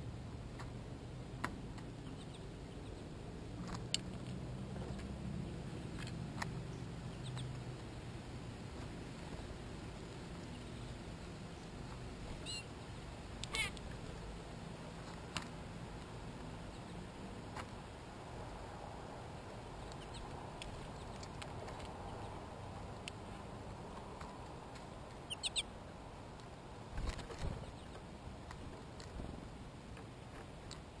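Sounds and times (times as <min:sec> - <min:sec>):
low outdoor hum: 0:00.0 - 0:31.0
high bird chirps: 0:12.4 - 0:12.7, 0:25.2 - 0:25.7.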